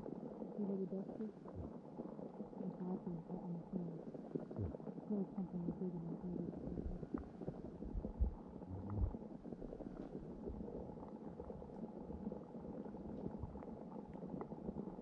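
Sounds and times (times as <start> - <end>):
underwater bubbling rumble: 0.0 - 15.0
faint ticks: 6.6 - 15.0.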